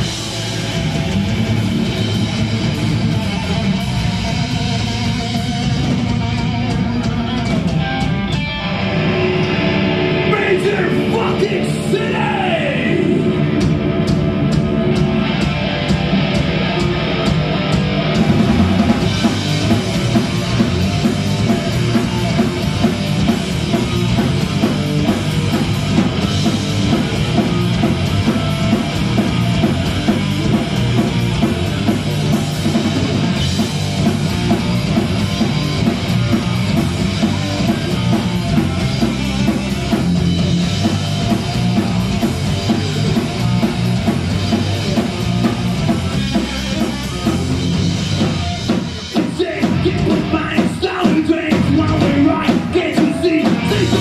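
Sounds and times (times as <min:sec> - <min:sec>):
distorted electric guitar: 0:00.0 - 0:54.0
drum kit: 0:00.0 - 0:54.0
person singing into microphone: 0:49.3 - 0:54.0.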